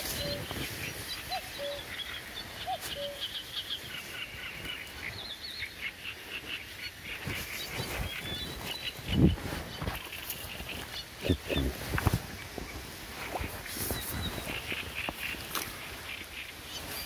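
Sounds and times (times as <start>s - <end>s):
cuckoo calling: 0.0s - 5.3s
small birds chirping: 0.0s - 17.0s.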